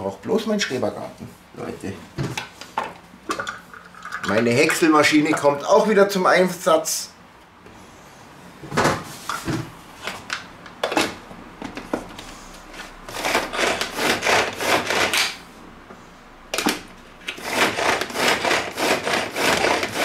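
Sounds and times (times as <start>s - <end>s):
food chopper blades whirring: 12.8s - 15.4s, 16.6s - 20.0s.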